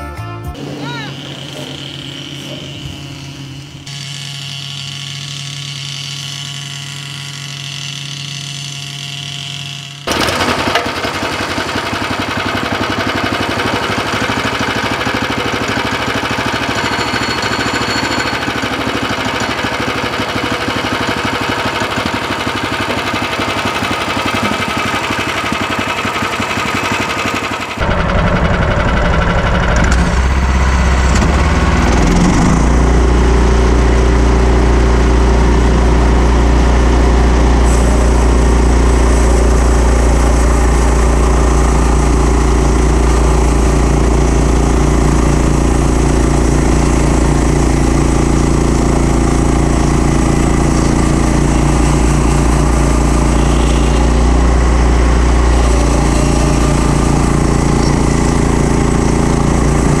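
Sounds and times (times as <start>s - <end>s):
sawmill engine running under load: 0.5s - 60.0s.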